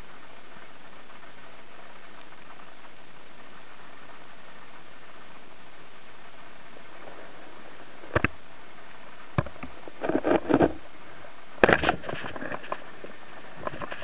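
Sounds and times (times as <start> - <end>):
scattered clicks and knocks: 8.1 - 8.4, 11.6 - 12.9.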